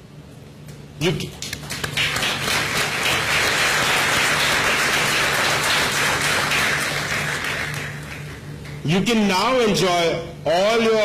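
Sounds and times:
audience applauding: 0:01.4 - 0:08.9.

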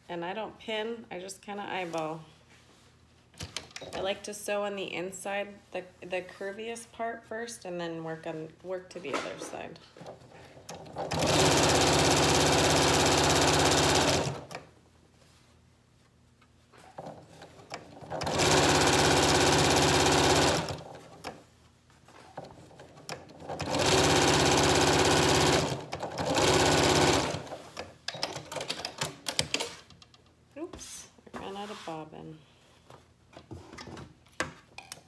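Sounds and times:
sewing machine stitching: 0:10.7 - 0:14.6, 0:17.0 - 0:21.4, 0:22.4 - 0:27.8.

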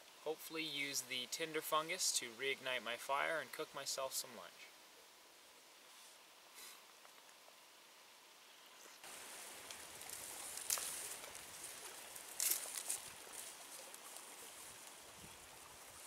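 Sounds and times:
steady hiss: 0:00.0 - 0:16.0
plant stalks rustling and snapping: 0:09.6 - 0:14.2.

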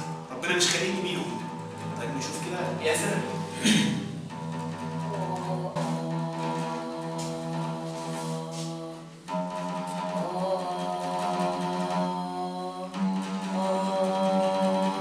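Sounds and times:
oud: 0:00.0 - 0:15.0
person singing sustained notes: 0:05.0 - 0:15.0.

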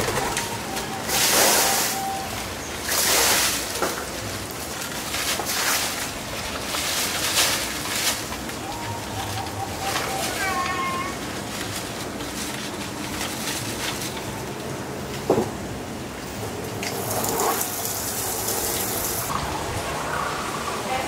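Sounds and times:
plastic bag and paper crinkling: 0:00.0 - 0:15.2.

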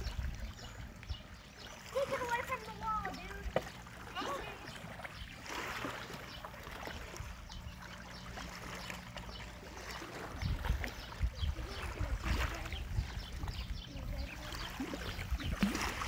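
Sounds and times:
water lapping against a wall: 0:00.0 - 0:16.0.

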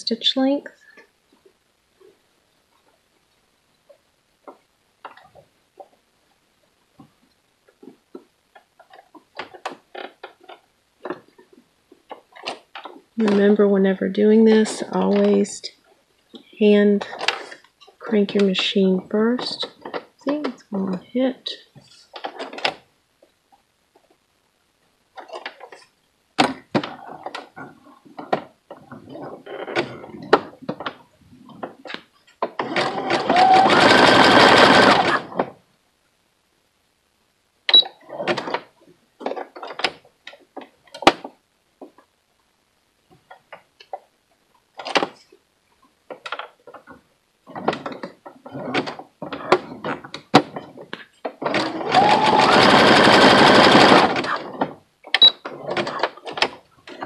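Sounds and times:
sewing machine stitching: 0:32.4 - 0:35.5, 0:51.4 - 0:57.0.

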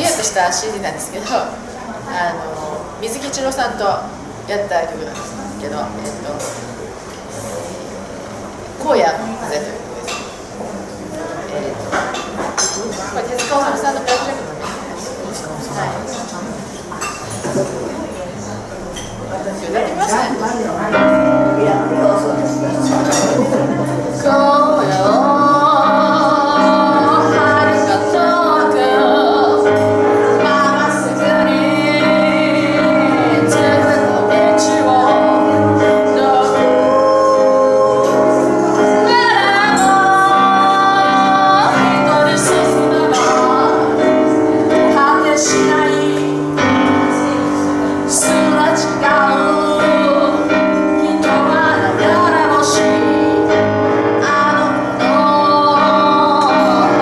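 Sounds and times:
grand piano accompaniment: 0:10.0 - 0:57.0
woman singing with vibrato: 0:20.9 - 0:57.0.

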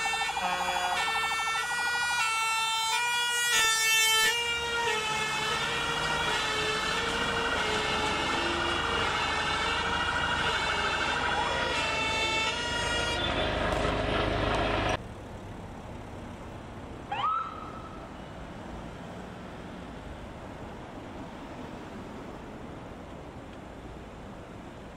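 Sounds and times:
emergency vehicle sirens wailing: 0:00.0 - 0:15.0, 0:17.1 - 0:18.9
quiet traffic noise: 0:00.0 - 0:24.9.

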